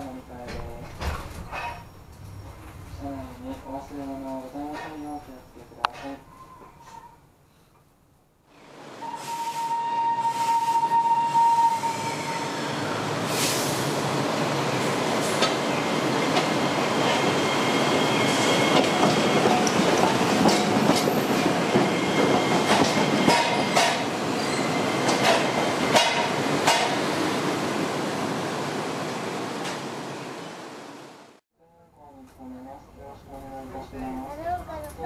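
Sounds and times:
high wheel squeal: 1.4s - 2.8s, 9.0s - 13.8s, 16.9s - 19.0s, 20.8s - 25.0s
tram wheels clicking over rail joints: 14.6s - 27.3s.

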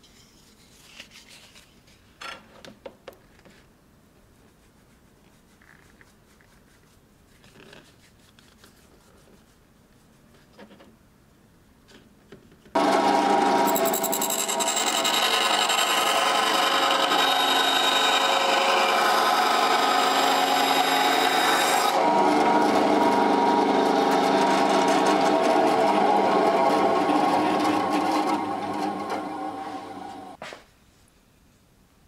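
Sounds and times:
band saw whine: 12.8s - 30.4s
saw cutting wood: 12.8s - 30.4s.

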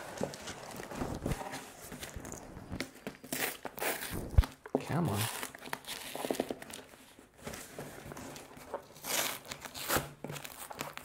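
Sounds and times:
cardboard flaps scraping: 0.0s - 2.8s
packing tape tearing: 3.1s - 6.9s, 8.6s - 11.0s.

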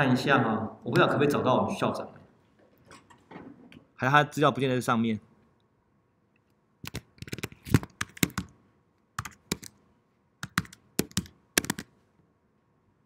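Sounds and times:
computer keyboard typing: 6.8s - 8.5s, 9.2s - 9.8s, 10.4s - 11.9s.

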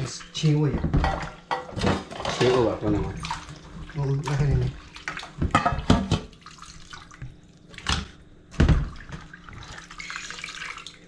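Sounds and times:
water dripping and splashing: 2.4s - 11.0s.

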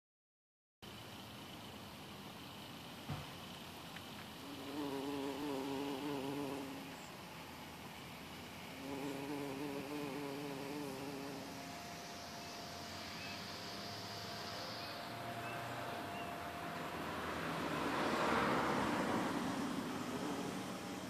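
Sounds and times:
bee buzzing in flight: 4.3s - 7.2s, 8.4s - 21.0s.

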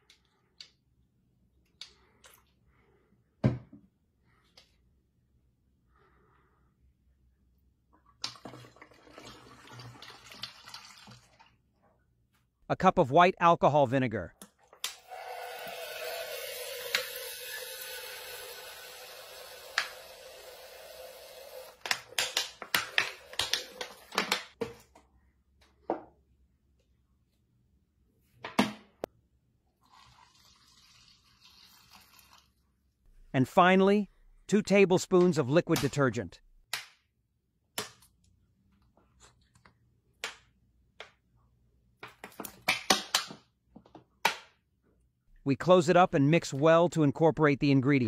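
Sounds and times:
liquid pouring into plastic jug: 8.1s - 11.6s, 29.8s - 32.6s.

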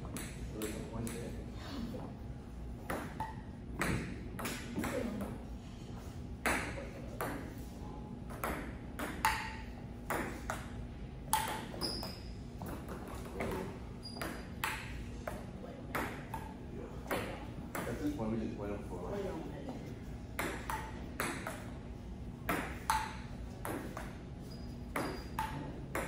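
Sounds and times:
ping-pong ball clicking off paddles: 8.3s - 18.0s, 20.4s - 21.7s, 22.5s - 24.2s, 24.9s - 26.0s.

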